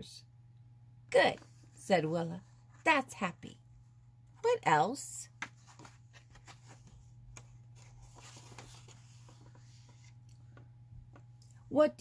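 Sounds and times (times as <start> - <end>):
page turning taps: 5.3 - 11.3
paper rustling: 5.4 - 10.2.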